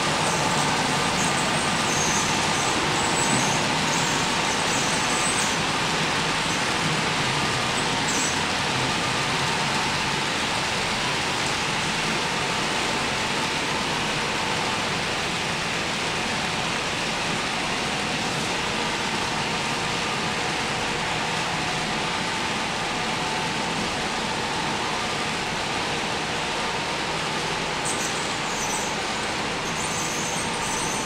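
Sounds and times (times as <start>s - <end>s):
model trains rolling on track: 0.0s - 31.0s.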